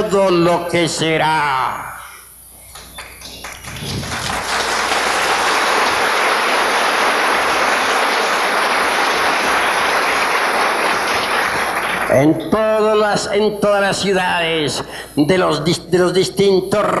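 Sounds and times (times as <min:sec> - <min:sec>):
audience applause: 0:03.0 - 0:12.2.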